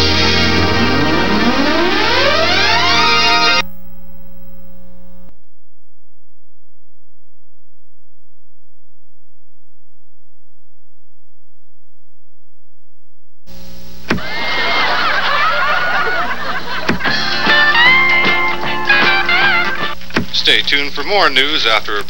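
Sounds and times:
music: 0.0s - 3.6s, 17.0s - 20.0s
electrical mains hum: 0.0s - 10.5s, 13.4s - 22.0s.

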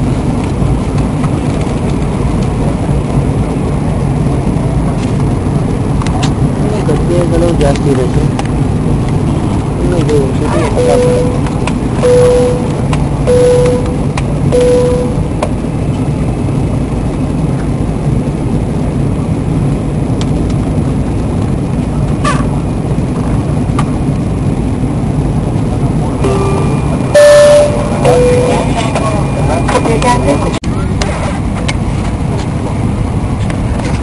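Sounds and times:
jet cabin engine rush: 0.0s - 34.0s
short humming tones: 10.8s - 15.4s, 26.2s - 29.0s.

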